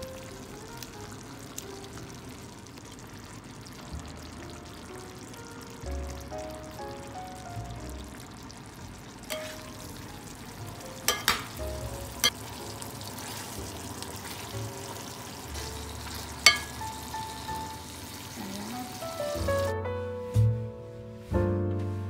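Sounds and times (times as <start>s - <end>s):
meat sizzling in a metal pan: 0.0s - 19.7s
utensil stirring: 9.3s - 10.0s, 11.0s - 11.6s, 12.2s - 19.7s
utensil knocking against pan: 11.1s - 11.6s, 16.4s - 16.8s.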